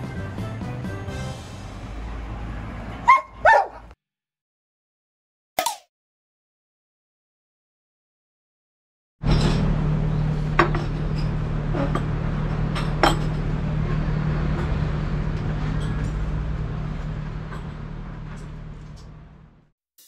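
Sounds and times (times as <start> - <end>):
tableware clinking: 12.8 - 13.4.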